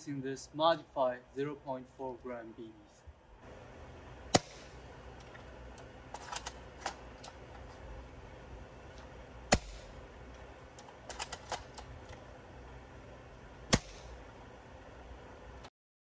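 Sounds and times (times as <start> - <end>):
airsoft rifle shots cracking: 4.3 - 4.8, 9.5 - 10.0, 13.7 - 14.2.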